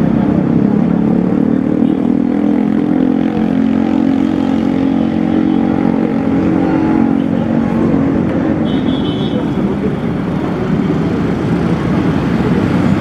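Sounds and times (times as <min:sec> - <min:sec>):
vehicle engine droning: 0:00.0 - 0:08.7
passing cars and motorcycles: 0:00.0 - 0:13.0.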